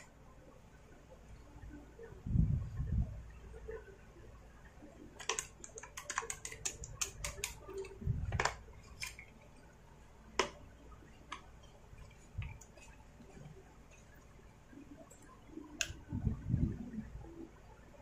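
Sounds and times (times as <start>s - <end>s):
small parts clicking and tapping: 5.1s - 9.4s.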